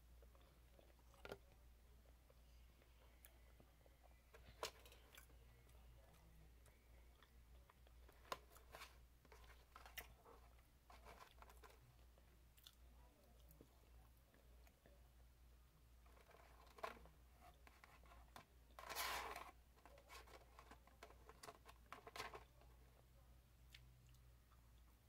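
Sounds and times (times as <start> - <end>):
low steady hum: 0.0 - 25.0
chewing and crunching food: 0.2 - 2.2, 2.8 - 14.9.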